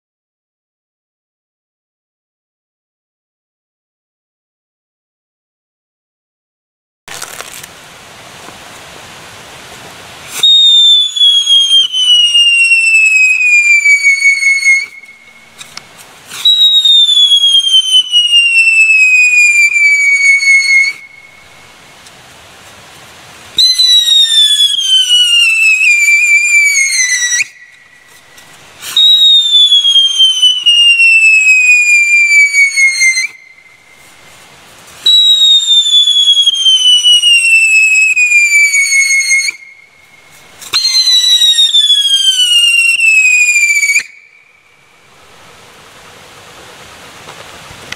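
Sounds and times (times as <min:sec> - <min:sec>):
firework sparks fizzing: 0:07.1 - 0:44.2, 0:44.9 - 0:47.9
firework whistles sliding down: 0:10.1 - 0:47.9.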